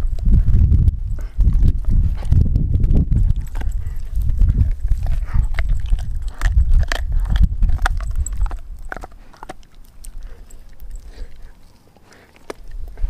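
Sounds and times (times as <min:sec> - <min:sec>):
dog chewing bone: 0:01.2 - 0:13.0.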